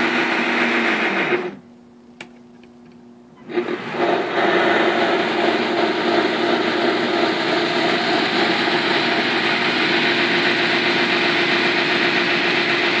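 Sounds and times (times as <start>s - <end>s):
model locomotive droning: 3.4s - 13.0s.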